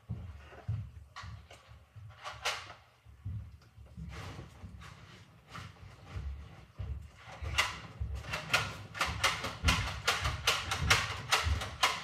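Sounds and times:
sharp clicks and knocks: 7.2s - 12.0s.

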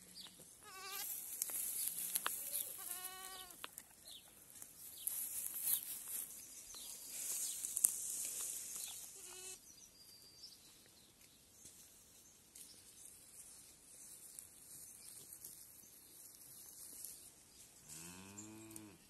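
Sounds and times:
goat bleat: 0.6s - 1.1s, 2.5s - 3.6s, 9.2s - 9.6s.

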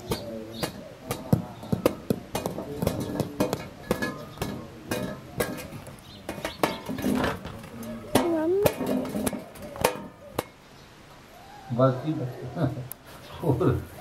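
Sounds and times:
knocks on a steel plate: 0.1s - 10.5s.

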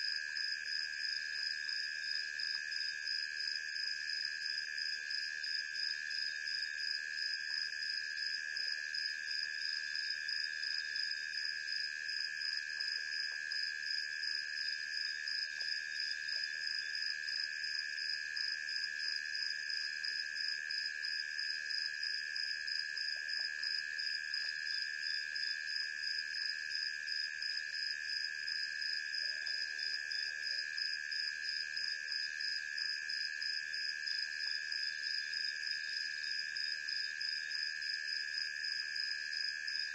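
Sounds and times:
night insect trills: 0.0s - 39.9s.

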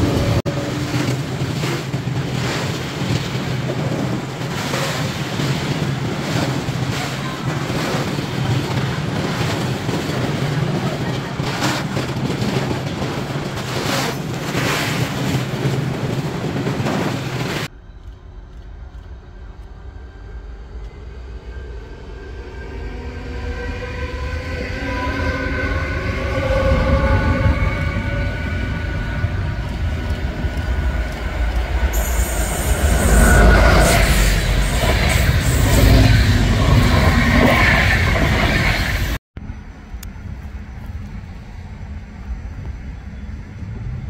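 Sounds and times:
freight train rushing past: 0.0s - 44.0s
passenger train passing: 0.0s - 44.0s.

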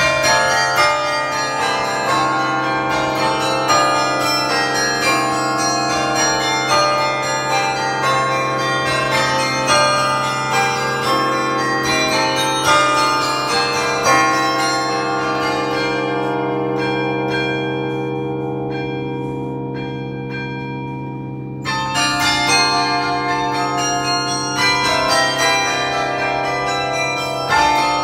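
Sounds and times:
carillon bells ringing: 0.0s - 28.0s.

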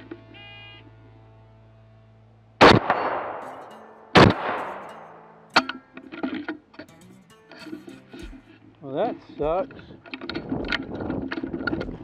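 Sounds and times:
rifle shots with echo: 2.6s - 3.4s, 4.2s - 4.6s.

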